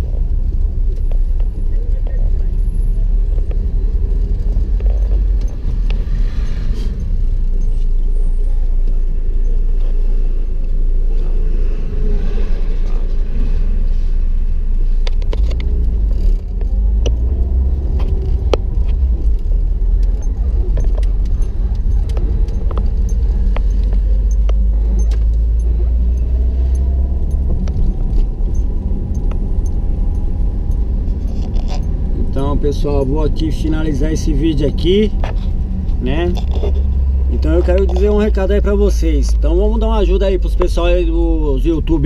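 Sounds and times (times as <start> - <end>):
sharp clicks and rattles: 0.0 - 8.0, 15.0 - 41.9
car engine and road noise: 0.0 - 42.0.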